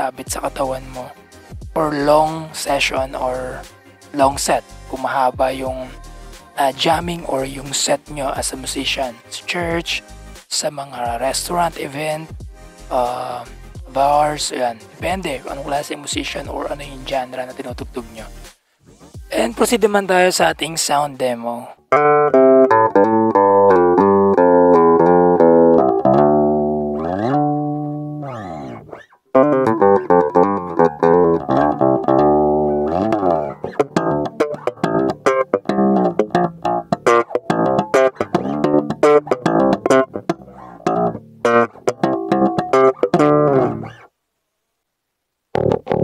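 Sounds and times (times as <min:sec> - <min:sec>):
electric bass notes: 0:00.3 - 0:09.0, 0:12.4 - 0:14.4, 0:21.9 - 0:44.0, 0:45.5 - 0:46.0.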